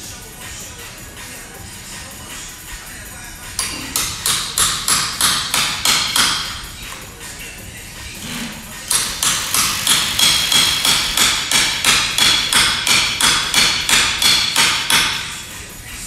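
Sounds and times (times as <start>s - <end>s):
rapid metallic taps: 8.9s - 15.4s.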